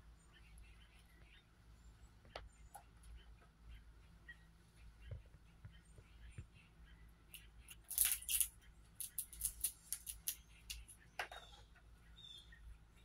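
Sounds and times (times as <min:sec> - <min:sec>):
squirrel cracking peanut shell: 0:07.3 - 0:11.1.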